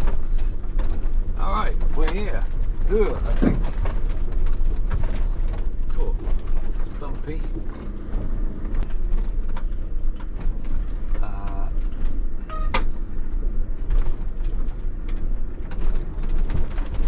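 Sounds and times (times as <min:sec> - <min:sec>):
low road rumble: 0:00.0 - 0:17.0
vehicle body knocking and rattling: 0:00.0 - 0:17.0
short squeaky creaks: 0:12.4 - 0:13.0.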